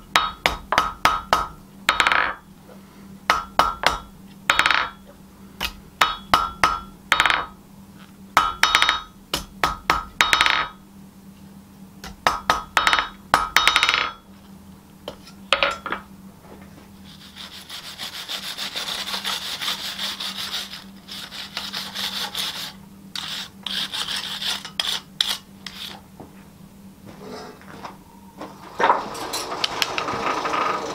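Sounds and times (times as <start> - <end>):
hammer striking steel on anvil: 3.3 - 5.0, 5.6 - 7.5, 8.4 - 10.8
rasping scrubbing on steel: 17.0 - 26.0.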